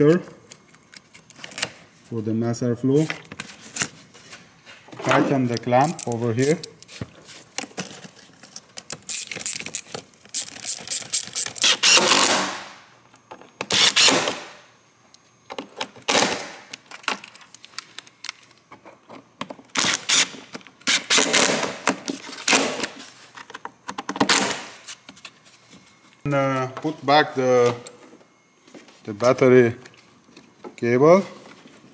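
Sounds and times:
cordless driver motor bursts: 10.4 - 12.5, 13.7 - 14.5, 19.8 - 21.5.

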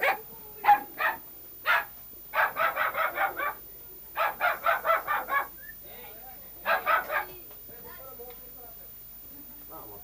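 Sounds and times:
dog barking: 0.0 - 3.6, 4.2 - 5.6, 6.6 - 7.4.

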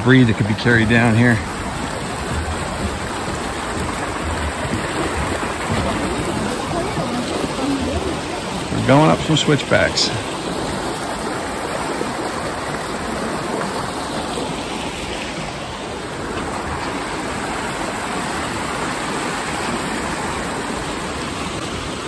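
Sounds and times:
creek rushing over rocks: 0.0 - 22.0.

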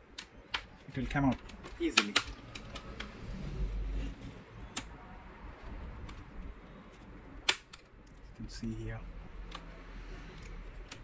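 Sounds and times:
plastic case clips snapping: 7.4 - 7.9.

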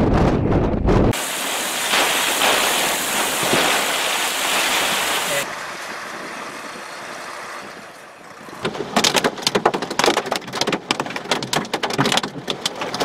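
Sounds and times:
steady hiss: 1.2 - 5.4
heavy rain on pavement: 1.2 - 5.5, 8.6 - 13.0.

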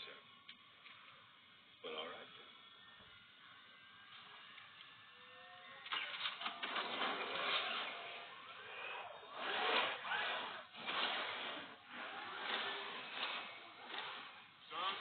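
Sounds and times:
mech suit servos whirring: 4.2 - 15.0.

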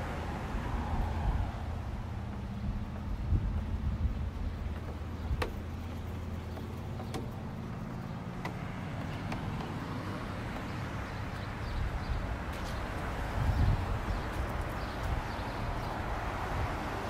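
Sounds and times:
passing traffic: 0.0 - 17.0
vehicle engine running: 1.6 - 11.7.

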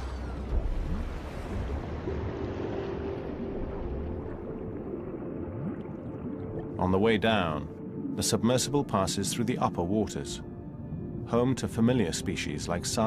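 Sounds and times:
underwater low rumble: 0.0 - 9.1
water gurgling: 0.0 - 10.2.

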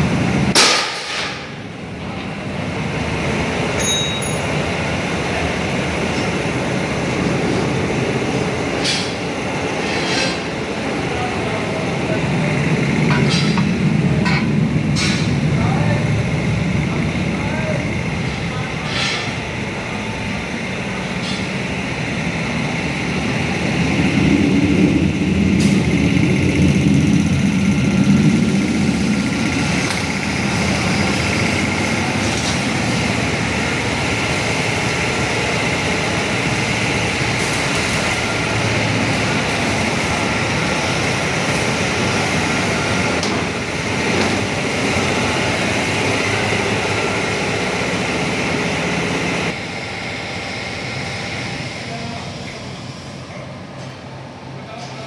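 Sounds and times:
tractor engine running: 10.5 - 52.6.

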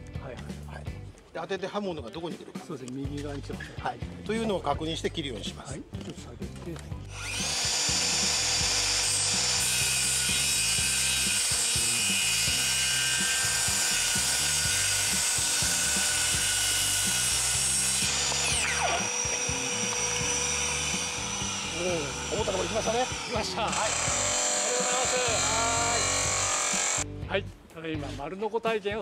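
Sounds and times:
circular saw cutting wood: 7.0 - 27.0.

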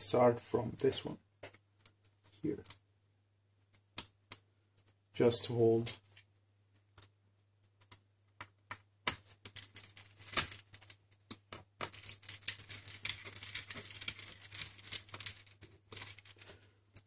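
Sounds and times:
hands rustling handling parts: 9.1 - 17.0.

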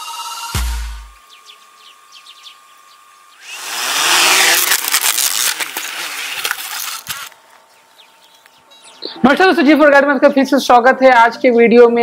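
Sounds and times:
drone motors whining: 0.1 - 9.2.

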